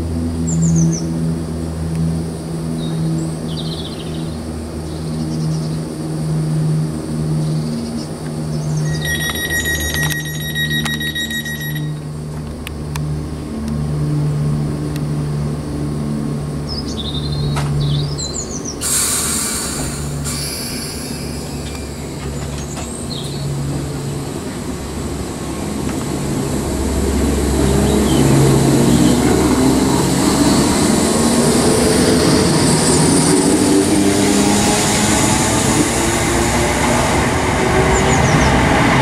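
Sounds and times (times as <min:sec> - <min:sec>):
electric train pulling out: 0:08.2 - 0:12.6, 0:18.8 - 0:39.0
air hiss: 0:18.8 - 0:22.1.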